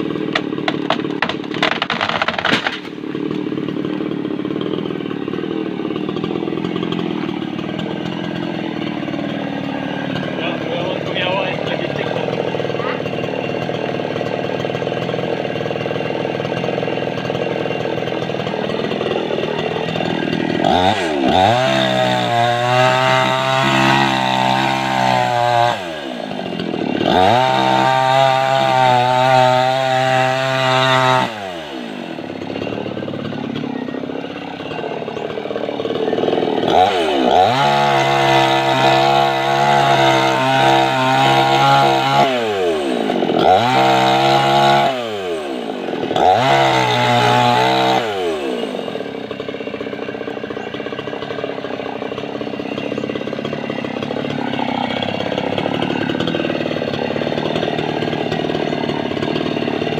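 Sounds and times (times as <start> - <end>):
chainsaw cutting wood: 0.0 - 59.9.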